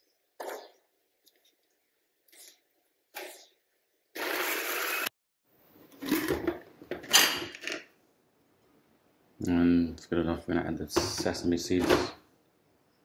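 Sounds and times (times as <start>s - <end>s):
blender chopping: 4.2s - 5.1s.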